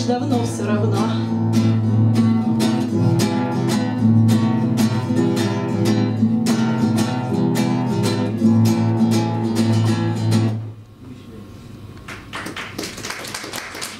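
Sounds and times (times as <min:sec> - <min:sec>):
acoustic guitar strumming: 0:00.0 - 0:10.8.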